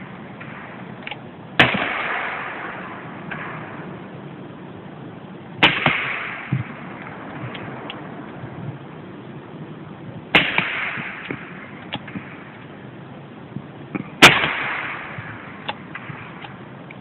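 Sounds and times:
gunshots with echo: 0:01.6 - 0:04.0, 0:05.6 - 0:07.9, 0:10.3 - 0:12.5, 0:14.2 - 0:16.4.

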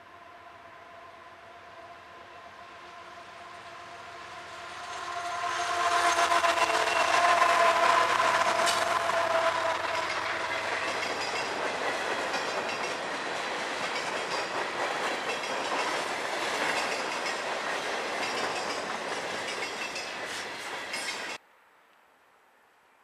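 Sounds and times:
train wheels rolling on rails: 0:03.4 - 0:21.4.

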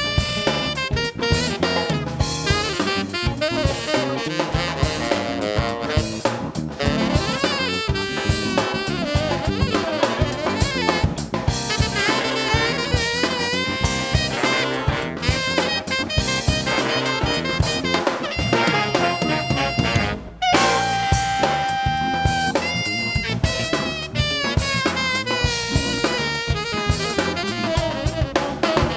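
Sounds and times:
funk band playing: 0:00.0 - 0:28.9
saxophone horn section: 0:00.0 - 0:28.9
sharp drum hits: 0:18.4 - 0:21.7.

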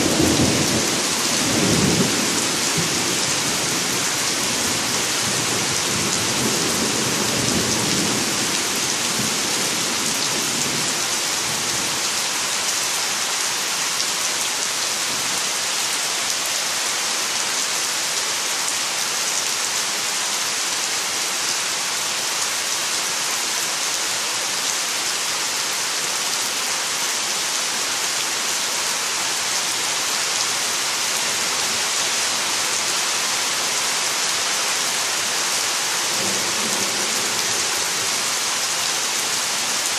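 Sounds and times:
heavy rain on trees: 0:00.0 - 0:39.9.

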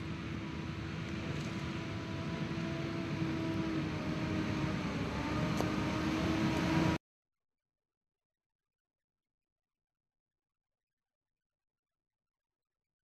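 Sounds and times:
heavy truck engines running: 0:00.0 - 0:07.0.

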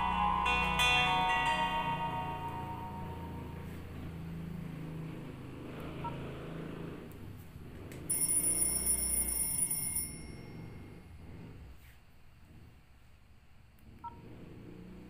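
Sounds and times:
high steady electronic tone: 0:00.0 - 0:04.5
soft low alert tone: 0:00.0 - 0:04.5.

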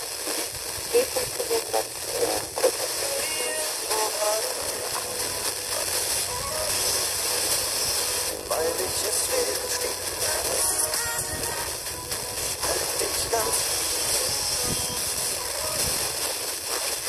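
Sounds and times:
faint radio music: 0:00.0 - 0:17.0
radio static hiss: 0:00.0 - 0:17.0
faint radio speech: 0:00.9 - 0:05.0, 0:08.3 - 0:11.4, 0:12.6 - 0:14.8.

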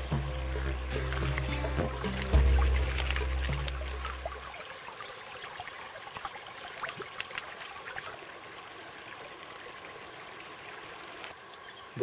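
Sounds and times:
stream trickling over stones: 0:00.0 - 0:12.0
bottle splashing in water: 0:00.9 - 0:04.6.

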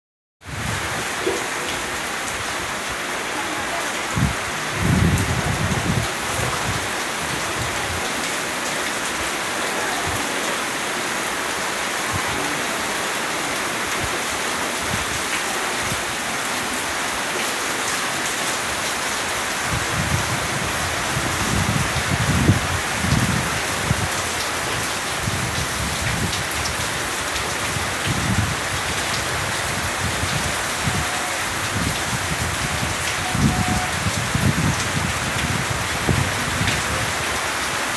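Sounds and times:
steady rain on trees: 0:00.4 - 0:37.9
wind buffeting microphone: 0:04.1 - 0:08.1, 0:19.6 - 0:37.2.

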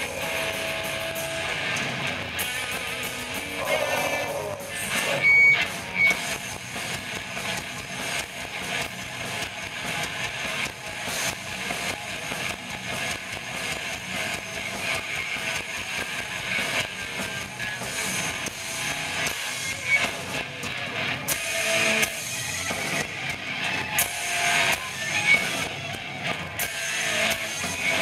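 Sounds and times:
high guitar squeal: 0:00.0 - 0:06.6
metal band playing live: 0:00.0 - 0:28.0.

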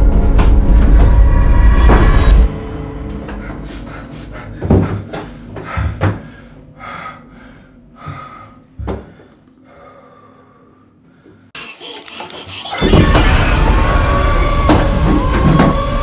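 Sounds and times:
man breathing hard: 0:03.3 - 0:11.6.

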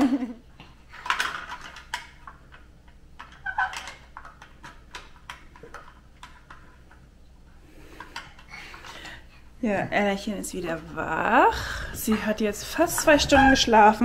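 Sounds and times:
plastic toys clicking on floor: 0:00.6 - 0:07.0.

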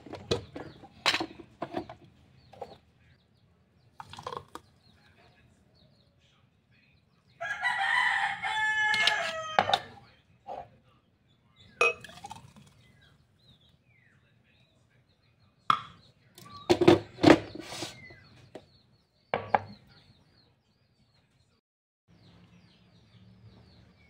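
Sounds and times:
rooster crowing: 0:07.4 - 0:09.9
plastic blender jar knocks: 0:19.4 - 0:19.8.

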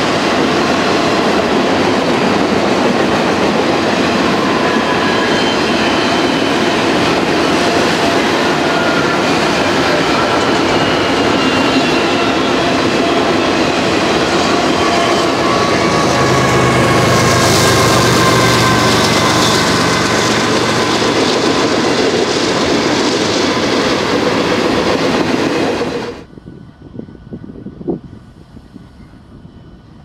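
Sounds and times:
freight train rumbling and rattling: 0:00.0 - 0:30.0
high wheel squeal: 0:04.0 - 0:24.9.

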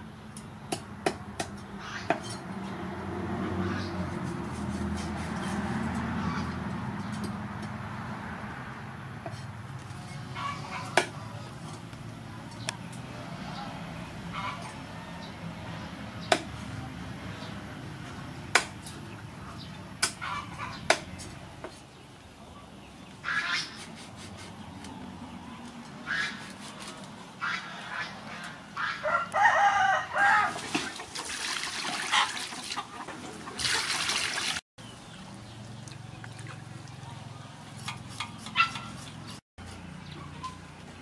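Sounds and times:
rooster crowing: 0:29.0 - 0:30.6.

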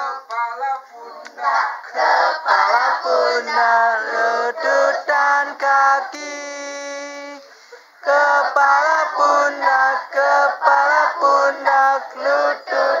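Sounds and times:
group singing in unison: 0:00.0 - 0:00.4, 0:01.0 - 0:13.0.

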